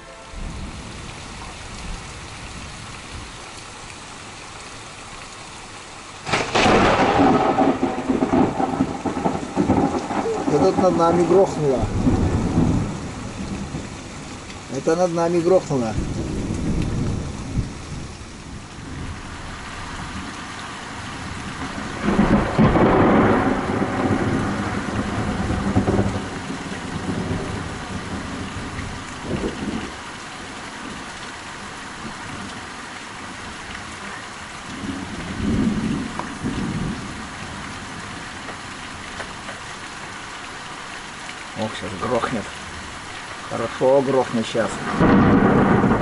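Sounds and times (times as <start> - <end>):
heavy rain: 0.0 - 46.0
thunder rumbling: 6.2 - 14.8, 15.7 - 20.4, 21.0 - 31.1, 34.6 - 39.8, 44.5 - 46.0.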